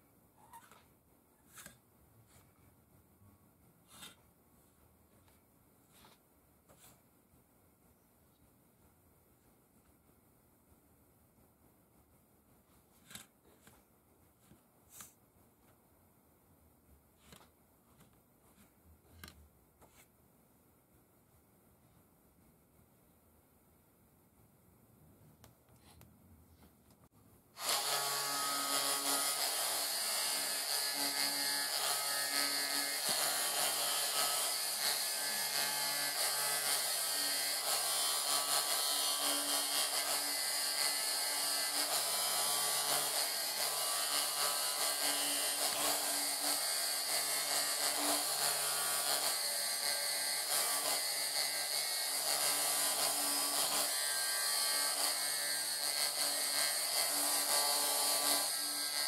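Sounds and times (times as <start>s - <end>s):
rotary carving tool engraving wood: 27.6s - 59.0s.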